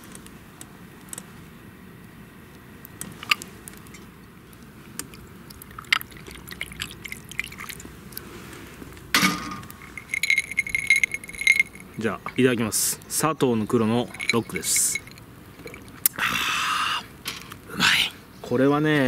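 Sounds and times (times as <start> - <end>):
liquid pouring over ice: 5.5 - 7.9
ice clinking against glass: 9.2 - 12.1, 14.0 - 15.9.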